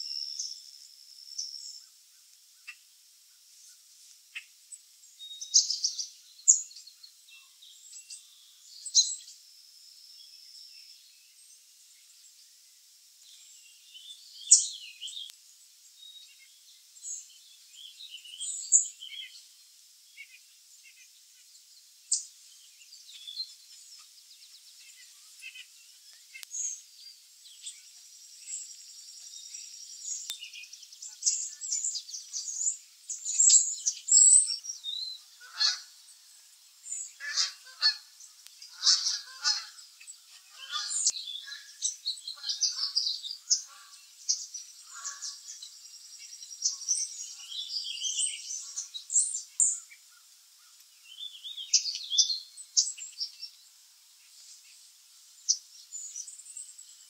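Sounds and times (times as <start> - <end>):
chickadees calling: 22.9 - 53.5.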